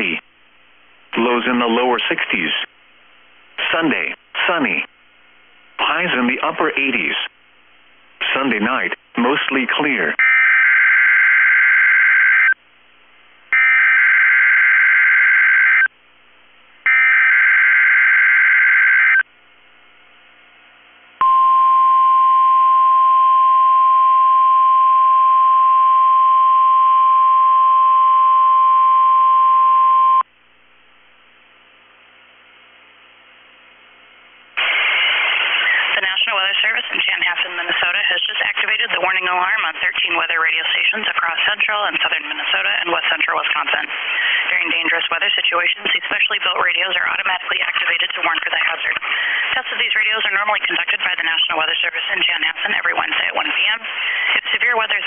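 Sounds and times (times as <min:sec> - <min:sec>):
voice announcement: 0:00.0 - 0:00.3, 0:01.1 - 0:02.7, 0:03.6 - 0:04.9, 0:05.8 - 0:07.4, 0:08.2 - 0:10.3, 0:35.6 - 0:55.0.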